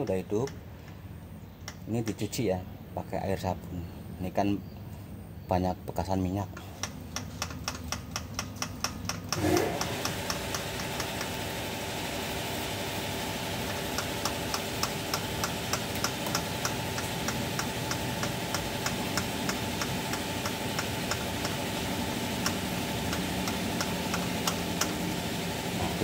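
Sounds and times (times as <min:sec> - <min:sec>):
steady background hum: 0:00.0 - 0:26.0
hand fuel pump clicking: 0:01.5 - 0:01.9, 0:06.6 - 0:11.3, 0:13.7 - 0:21.7, 0:22.4 - 0:25.1.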